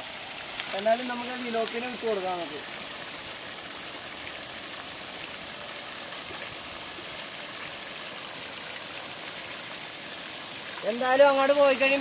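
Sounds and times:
water gushing into a pond: 0:00.0 - 0:12.0.

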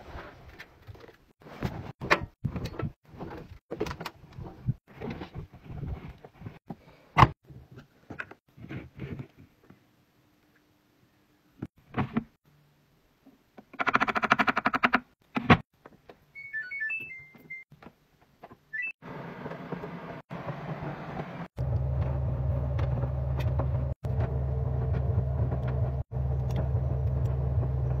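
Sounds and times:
electronic beeps: 0:16.4 - 0:17.7, 0:18.7 - 0:19.0.

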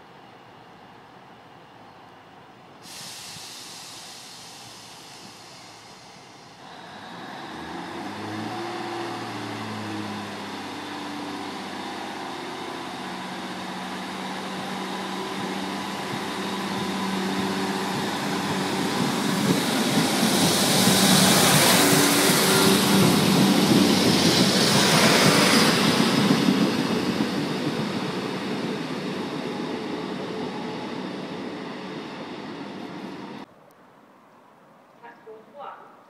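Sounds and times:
train engine hum: 0:00.0 - 0:33.5
wheels rushing on rails: 0:03.8 - 0:33.5.

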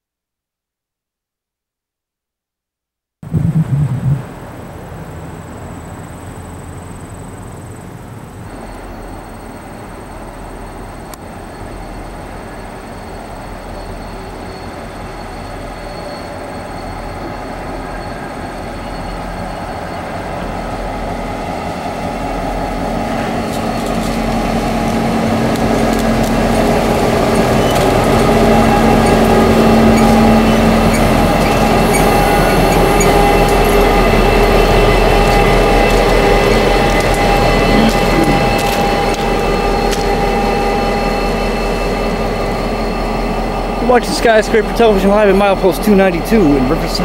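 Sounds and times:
locomotive diesel engines: 0:03.4 - 0:47.0.

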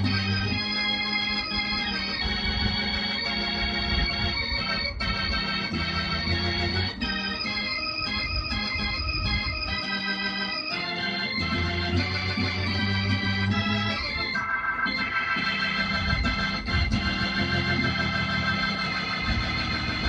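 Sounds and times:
bass line: 0:00.0 - 0:20.0
gospel organ keyboard chords: 0:00.0 - 0:20.0.

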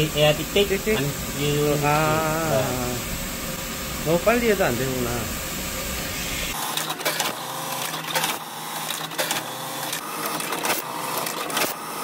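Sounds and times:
steady low machine hum: 0:00.0 - 0:06.6
sharp mechanical clicks: 0:06.5 - 0:11.8.

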